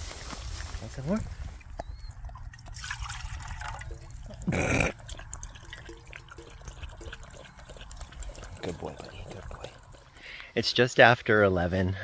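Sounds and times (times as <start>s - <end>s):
dog lapping water from metal cup: 1.9s - 10.4s.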